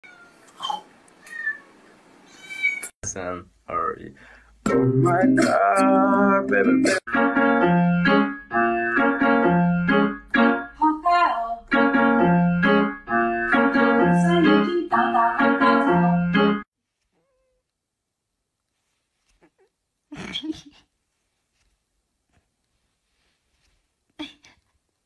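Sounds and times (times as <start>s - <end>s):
bass line: 4.6s - 10.2s
keyboard melody of short notes: 4.7s - 10.6s.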